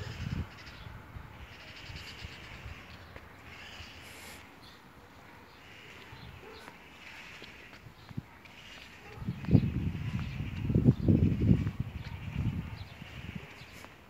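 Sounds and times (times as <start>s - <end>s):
distant chirping: 0.0s - 13.9s.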